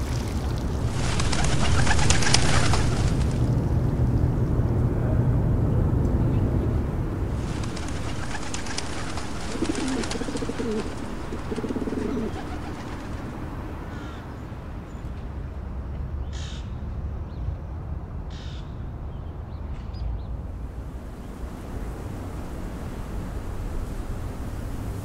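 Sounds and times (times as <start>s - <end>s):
wind rumble: 0.0s - 15.9s, 20.4s - 25.0s
pigeons cooing: 0.9s - 3.3s, 7.3s - 14.2s.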